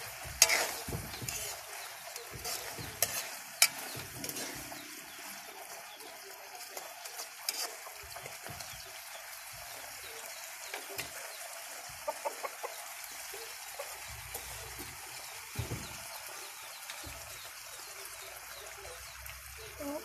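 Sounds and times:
chickens clucking: 0.0 - 20.0
faint sizzle in a pan: 0.0 - 20.0.

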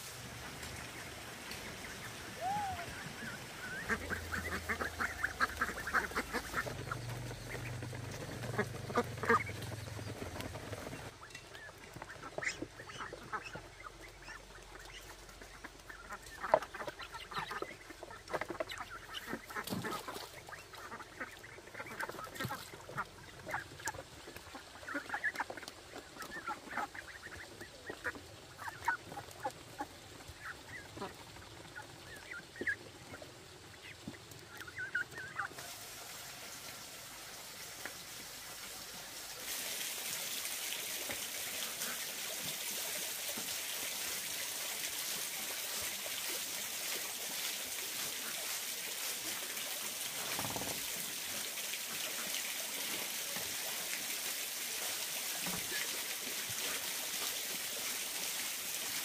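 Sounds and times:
ducks quacking: 0.4 - 35.7
steady hiss: 35.6 - 42.0.

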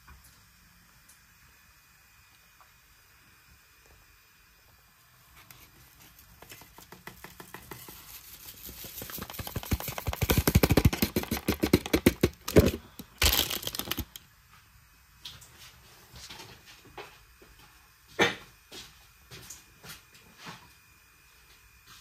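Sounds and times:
foil sachet crinkling: 7.8 - 14.2.

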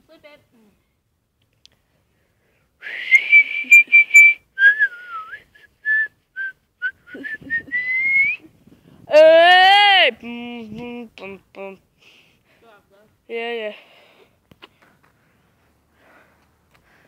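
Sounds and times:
person whistling a tune: 2.8 - 8.4.

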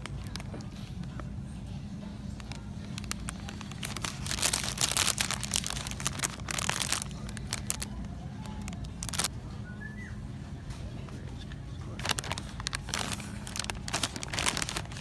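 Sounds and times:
snack bag crinkling: 0.0 - 1.2, 2.3 - 9.3, 11.9 - 15.0
low steady hum: 0.0 - 15.0.

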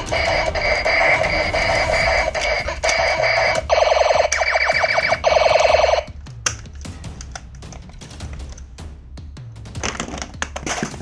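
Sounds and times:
pulsing electronic tone: 0.0 - 6.0.

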